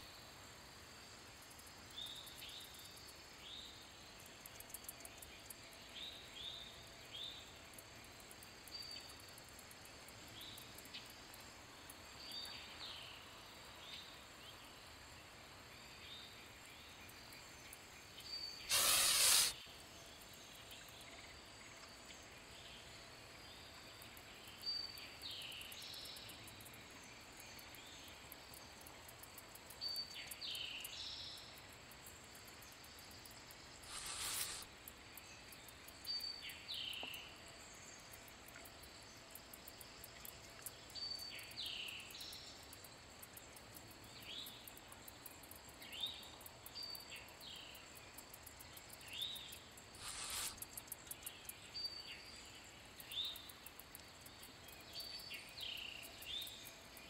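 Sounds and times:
goose hissing: 18.7 - 19.6, 33.8 - 34.7, 50.0 - 50.6
short high chirps: 18.7 - 19.6.

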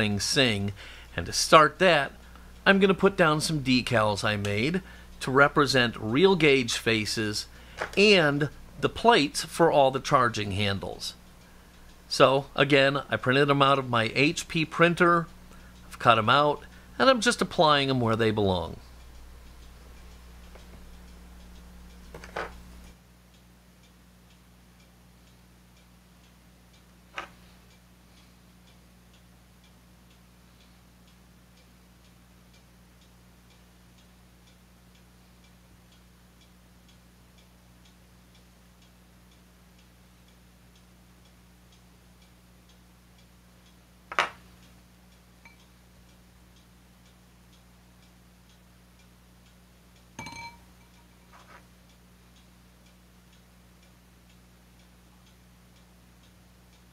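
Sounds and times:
low hum: 0.0 - 23.9
faint regular ticking: 0.0 - 56.9
metal tools clicking on cutting mat: 22.1 - 22.6.

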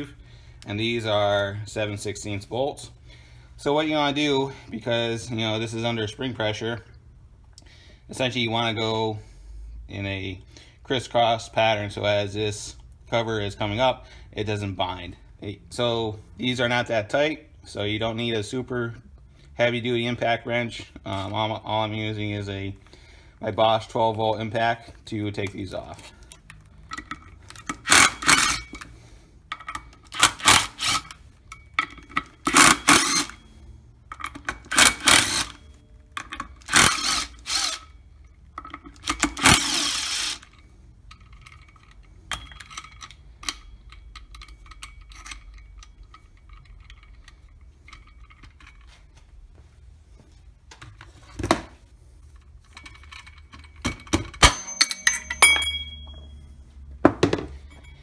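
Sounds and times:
impact driver hammering: 54.4 - 56.1
metal clinks with ring: 54.4 - 56.6, 57.6 - 58.0.

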